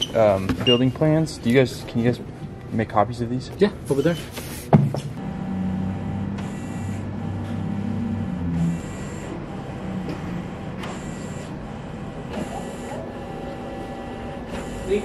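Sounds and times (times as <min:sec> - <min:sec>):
printer humming: 0:04.3 - 0:15.0.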